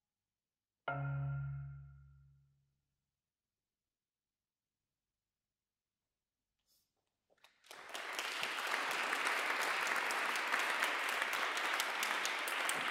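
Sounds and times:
audience applause: 7.4s - 12.9s.

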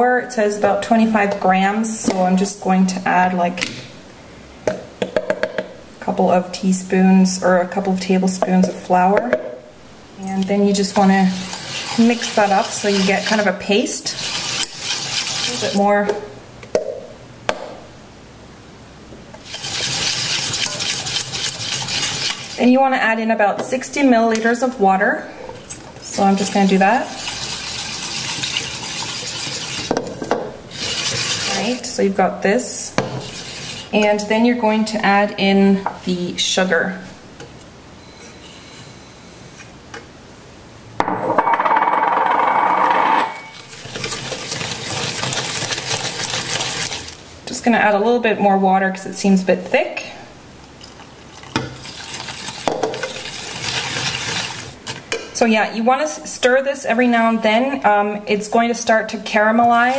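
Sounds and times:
spoon scraping pan: 10.2s - 16.2s, 19.4s - 23.0s, 25.4s - 34.4s, 38.0s - 39.7s, 43.3s - 47.2s.

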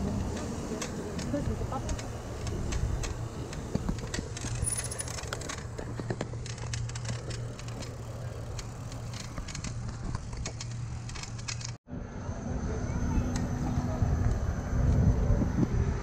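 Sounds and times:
bicycle clicks and rattles: 0.0s - 11.8s
low rumble of bicycle riding: 0.0s - 16.0s.

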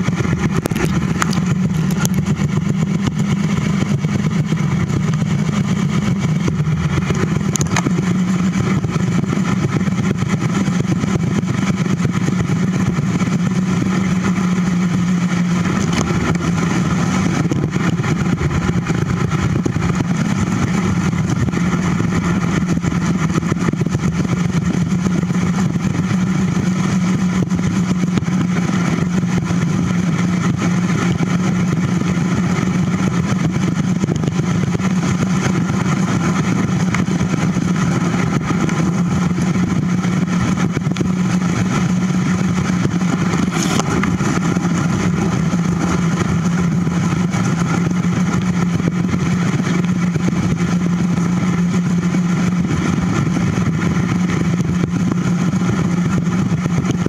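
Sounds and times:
droning wind: 0.0s - 57.0s
bicycle rolling noise: 41.8s - 50.4s.

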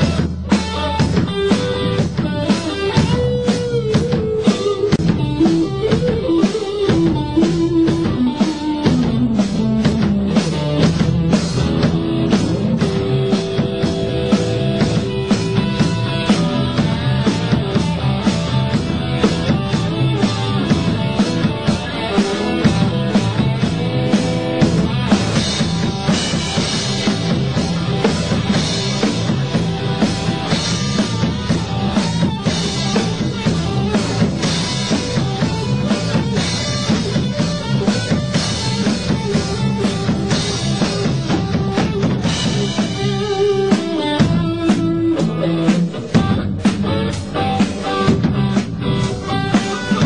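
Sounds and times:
drum kit beat: 0.0s - 50.0s
electric guitar playing: 0.0s - 50.0s.

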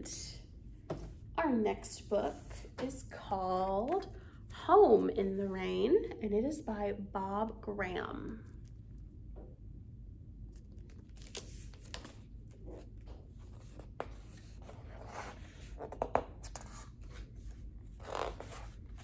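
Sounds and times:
low room hum: 0.0s - 19.0s
book pages turning: 10.5s - 19.0s.

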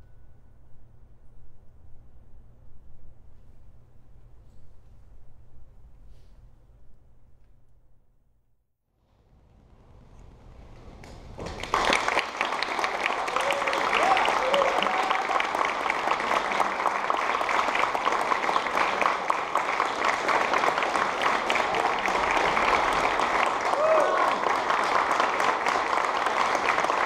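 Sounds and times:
audience applauding: 11.3s - 27.0s.

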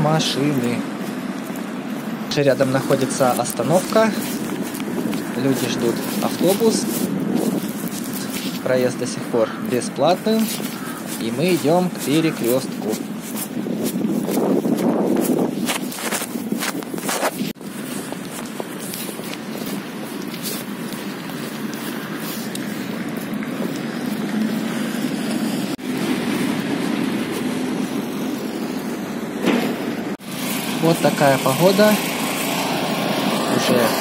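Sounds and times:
wind noise on microphone: 0.0s - 30.4s
footsteps on pavement: 0.0s - 34.0s
cars driving past: 17.6s - 34.0s.

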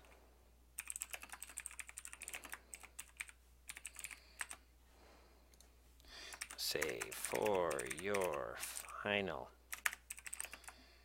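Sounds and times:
keyboard typing: 0.8s - 4.6s, 6.3s - 9.0s, 9.7s - 10.8s.

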